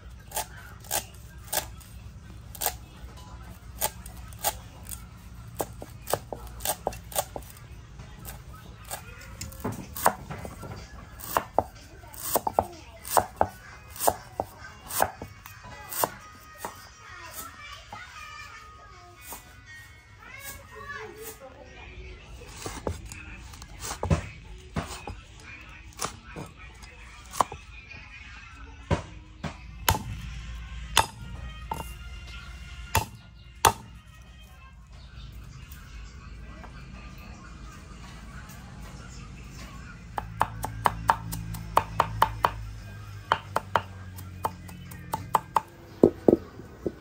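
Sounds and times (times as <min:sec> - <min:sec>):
knife chopping on cutting board: 0:31.0 - 0:31.9, 0:33.0 - 0:33.9.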